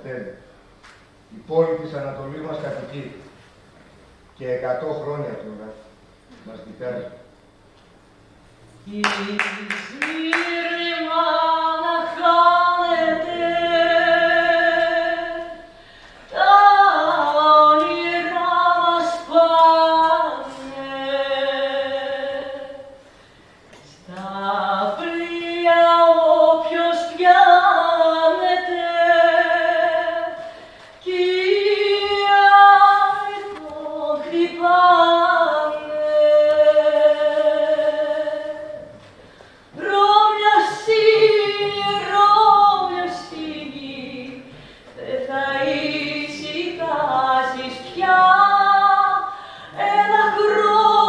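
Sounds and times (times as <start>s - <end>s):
woman singing alone: 8.8s - 15.7s, 16.3s - 23.0s, 24.1s - 38.9s, 39.8s - 51.0s
singer breaths: 15.7s - 16.3s, 23.0s - 23.7s, 30.4s - 31.0s, 39.2s - 39.8s, 44.5s - 45.0s, 49.3s - 49.8s.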